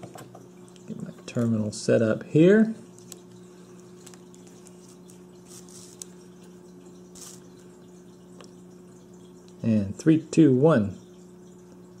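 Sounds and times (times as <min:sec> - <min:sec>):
steady low hum: 0:00.0 - 0:12.0
soft rustles: 0:04.1 - 0:06.2.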